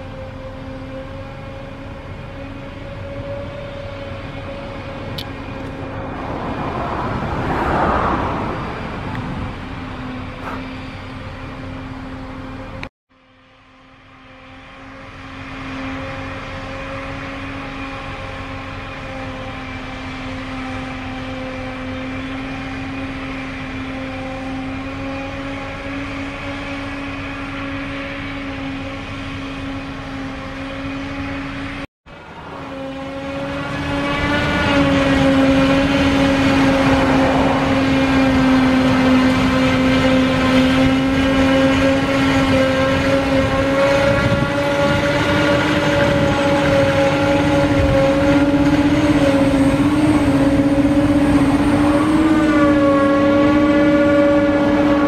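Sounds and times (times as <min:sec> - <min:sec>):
high hum on one pitch: 0:00.0 - 0:55.0
forage harvester chopping grass: 0:10.3 - 0:10.7, 0:33.5 - 0:54.9.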